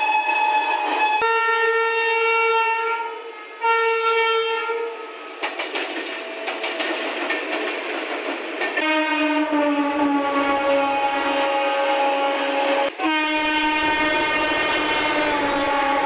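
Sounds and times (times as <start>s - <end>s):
locomotive horn blasts: 0.0s - 5.3s, 8.8s - 16.0s
train clattering past: 0.0s - 16.0s.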